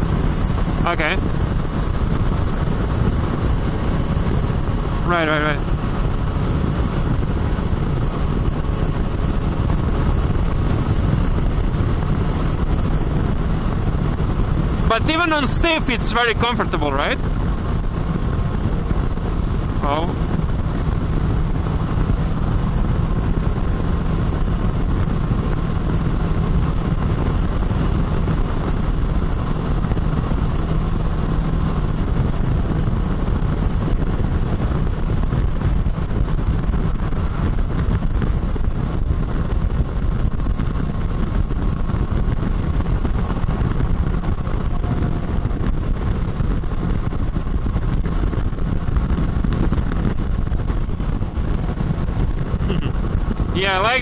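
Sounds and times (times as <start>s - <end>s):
motorcycle engine cruising: 0.0s - 54.0s
road noise: 0.0s - 54.0s
wind noise: 0.0s - 54.0s.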